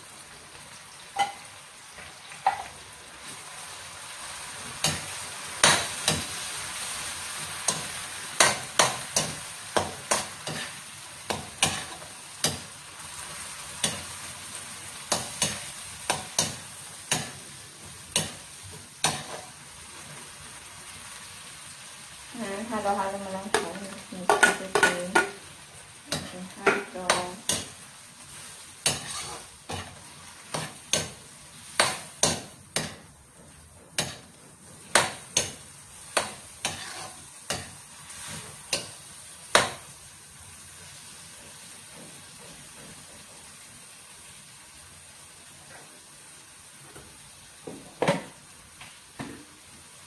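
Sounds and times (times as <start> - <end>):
meat sizzling: 0.0 - 50.0
metal spatula scraping a wok: 3.6 - 17.5, 18.1 - 19.6, 26.1 - 39.0.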